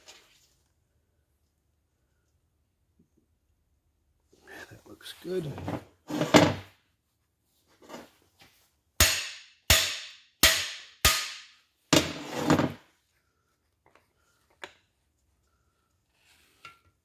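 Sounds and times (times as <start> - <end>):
hammer striking steel bar: 9.0 - 11.6.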